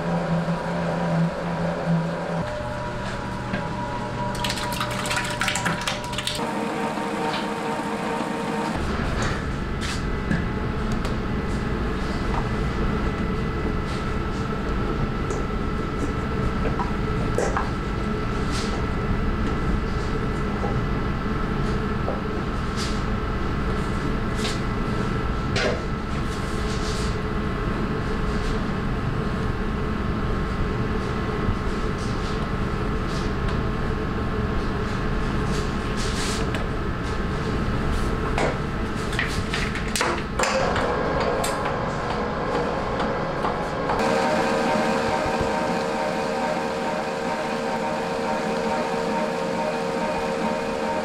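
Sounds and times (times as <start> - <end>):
stand mixer running: 0.1 - 9.0, 40.4 - 51.0.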